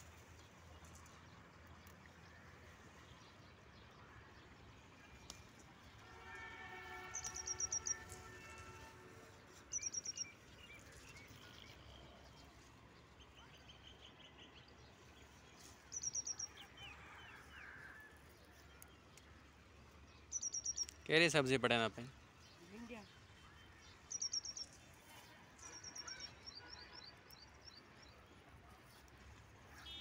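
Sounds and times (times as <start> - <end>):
faint chirps of other birds: 6.9 - 8.6, 9.5 - 17.8, 20.0 - 21.0, 22.1 - 29.1, 29.7 - 30.0
bird high chirps: 7.1 - 8.2, 9.7 - 11.6, 15.9 - 16.6, 20.3 - 21.0, 24.0 - 24.8, 25.6 - 27.1.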